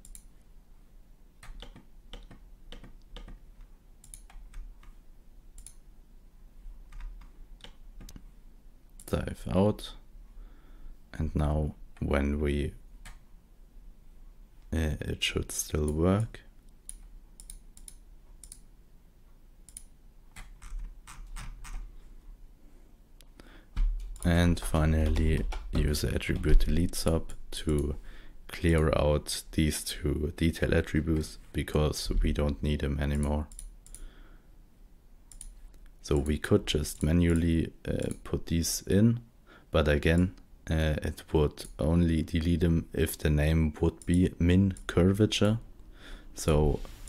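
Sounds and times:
keyboard and mouse clicks: 0:00.0 - 0:00.3, 0:01.4 - 0:05.0, 0:05.6 - 0:05.8, 0:06.9 - 0:08.2, 0:16.8 - 0:18.7, 0:19.7 - 0:21.9, 0:23.8 - 0:26.9, 0:35.3 - 0:36.4
faint low hum: 0:00.0 - 0:47.0.

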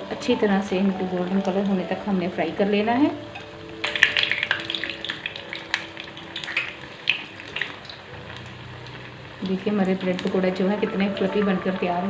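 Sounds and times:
food sizzling in hot oil: 0:00.0 - 0:12.0
utensil stirring in oil: 0:03.2 - 0:11.9.

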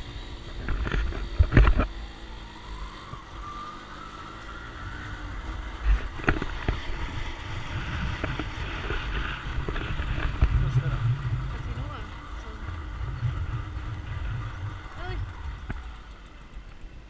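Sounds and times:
faint whine: 0:00.0 - 0:17.0
motorcycle engine rumble: 0:00.0 - 0:17.0
wind on microphone: 0:05.4 - 0:16.2.

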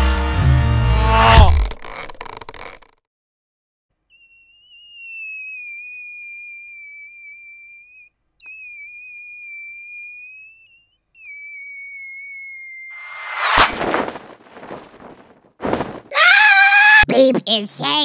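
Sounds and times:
balloon air squealing: 0:00.8 - 0:02.9, 0:04.1 - 0:13.8.

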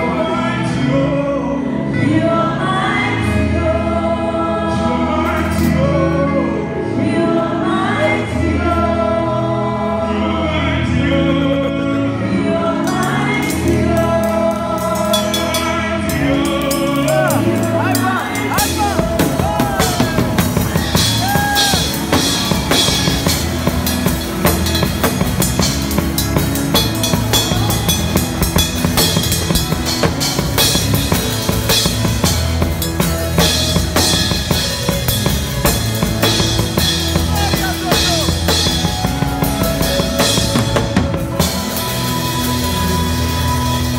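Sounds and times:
sustained bass line: 0:00.0 - 0:43.9
drum kit playing: 0:12.8 - 0:43.9.

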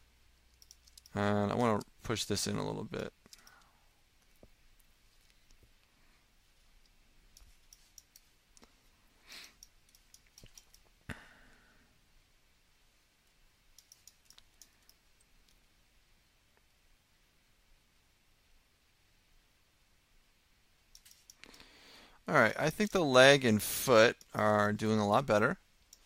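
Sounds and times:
soft hiss: 0:00.0 - 0:26.0
mouse and keyboard clicks: 0:00.5 - 0:01.2, 0:07.3 - 0:08.7, 0:09.6 - 0:10.9, 0:13.8 - 0:15.6, 0:20.9 - 0:21.6.

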